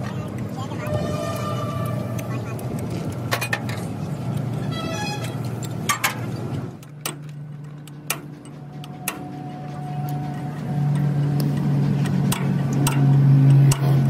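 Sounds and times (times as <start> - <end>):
steady low hum: 0.0 - 14.0
metallic spanner clicks: 6.8 - 14.0.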